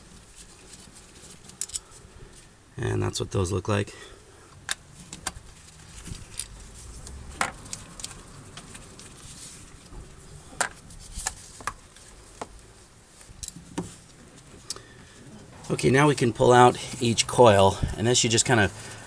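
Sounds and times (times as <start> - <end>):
small metal parts clicking: 1.3 - 1.9.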